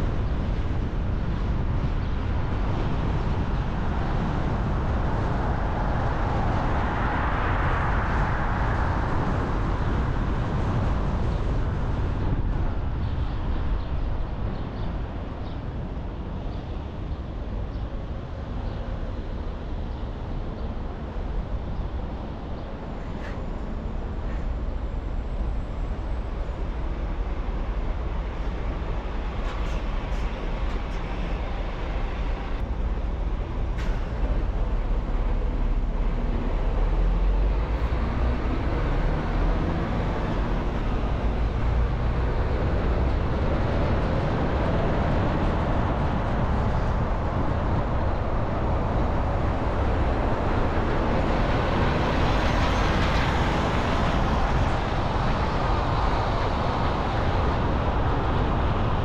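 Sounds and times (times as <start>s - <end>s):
tyre road noise: 0.0s - 59.0s.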